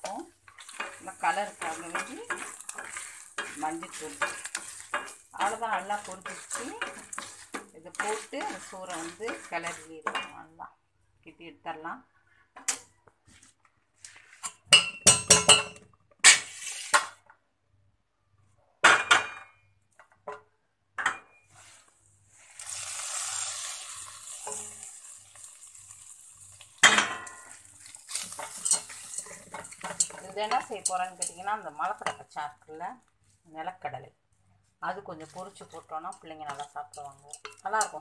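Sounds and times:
hot oil sizzling: 0:00.0 - 0:10.0, 0:21.6 - 0:32.4, 0:35.2 - 0:38.0
wooden spatula knocking on pot: 0:00.8 - 0:10.4.

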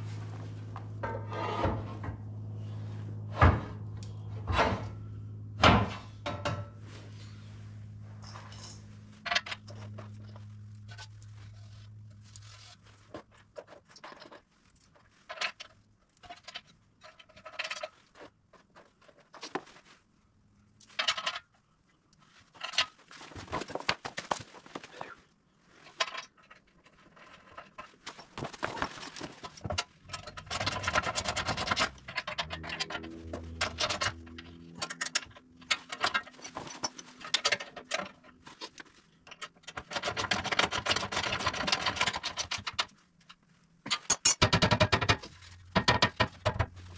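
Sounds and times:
tools and bolts clinking on metal: 0:05.7 - 0:06.8, 0:08.2 - 0:11.1, 0:25.9 - 0:38.4, 0:39.2 - 0:46.9.

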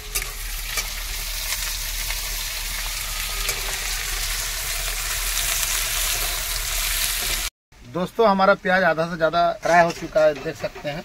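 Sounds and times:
onions sizzling in hot oil: 0:00.0 - 0:07.5.

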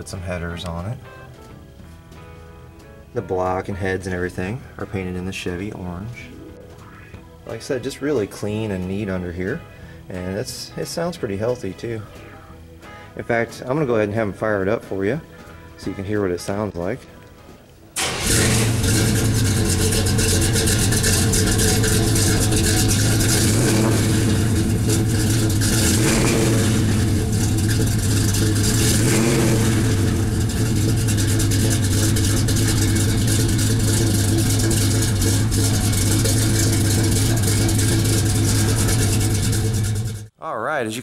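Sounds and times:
engine running through exhaust: 0:18.0 - 0:40.3.

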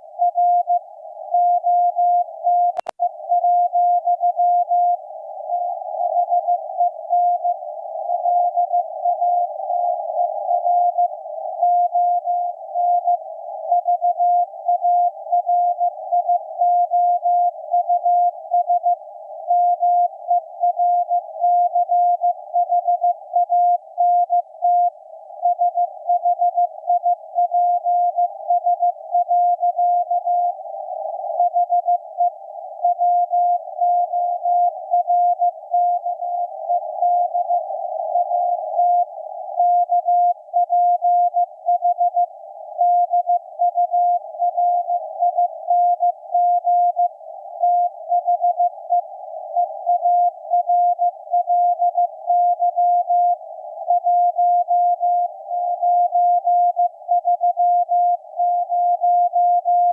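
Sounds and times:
morse code tone: 0:49.9 - 0:59.9.

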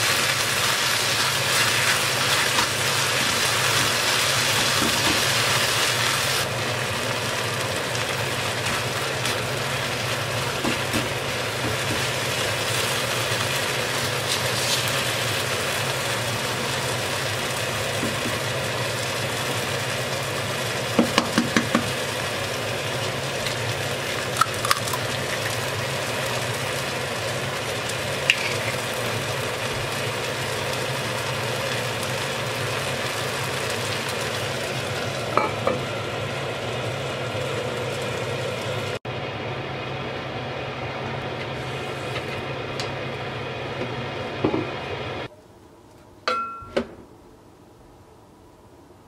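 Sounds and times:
mechanical fan drone: 0:00.0 - 0:46.3
egg cracking: 0:24.2 - 0:25.6.

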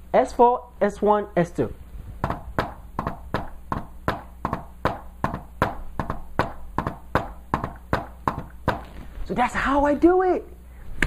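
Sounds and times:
hand tapping on a whiteboard: 0:02.2 - 0:09.0.

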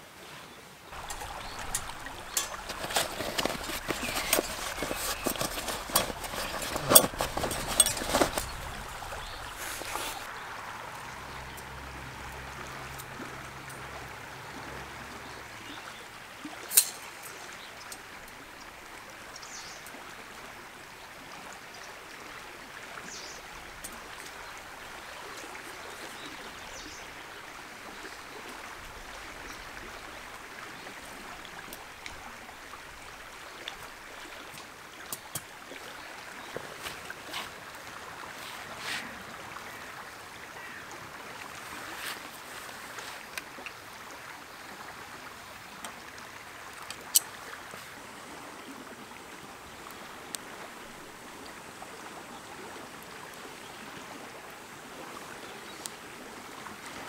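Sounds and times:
river flowing: 0:00.0 - 0:57.0
metal clattering and clicking: 0:01.0 - 0:09.0.

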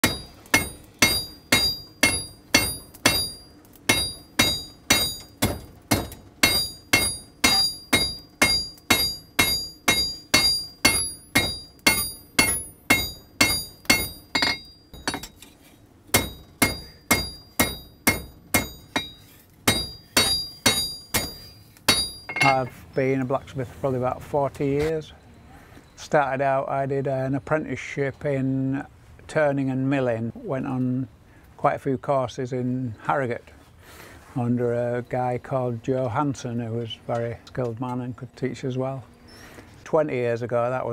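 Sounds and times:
hammer ringing on anvil: 0:00.0 - 0:05.4, 0:06.0 - 0:15.4, 0:16.1 - 0:22.7.

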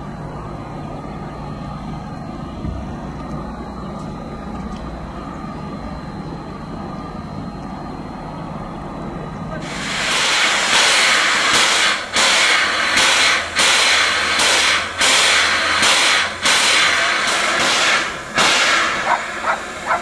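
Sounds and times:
steam locomotive chuffing: 0:08.8 - 0:20.0
steam blowing from drain cocks: 0:09.6 - 0:20.0.

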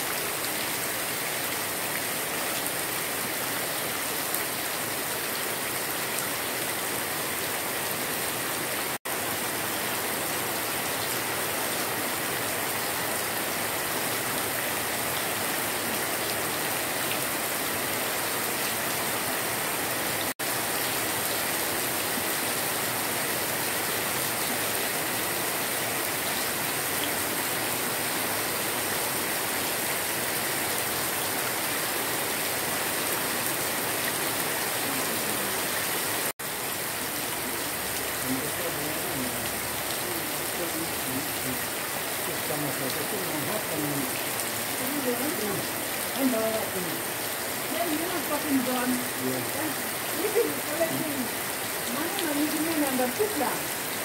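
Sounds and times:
heavy rain pouring: 0:00.0 - 0:54.0
running surface water: 0:08.8 - 0:54.0.

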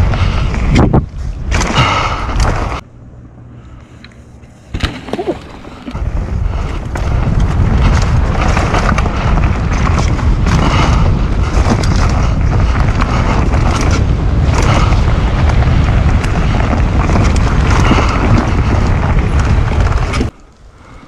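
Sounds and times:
bike clicks and rattles: 0:00.0 - 0:02.8, 0:03.6 - 0:21.0
wind rumble on microphone: 0:00.0 - 0:02.9, 0:04.7 - 0:21.0
tyres rolling over dirt: 0:04.7 - 0:20.4.

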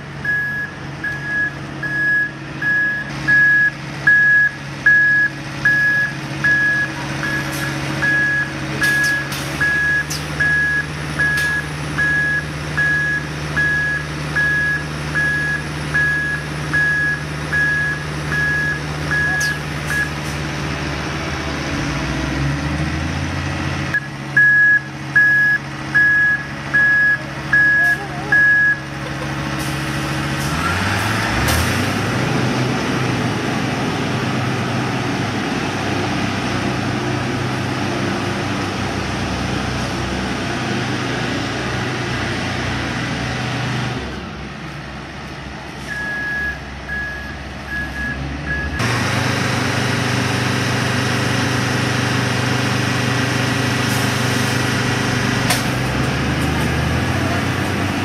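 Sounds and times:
diesel truck engine running: 0:00.0 - 0:58.0
reverse alarm beeping: 0:00.2 - 0:20.2, 0:24.0 - 0:28.9, 0:45.9 - 0:48.8.

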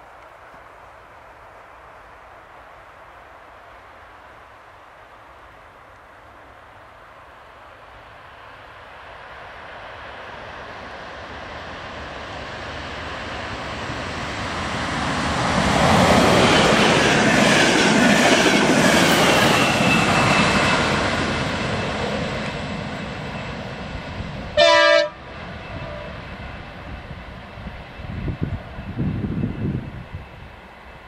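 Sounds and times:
train wheels rumbling and clacking: 0:11.8 - 0:24.6
train horn blast: 0:24.5 - 0:26.3.

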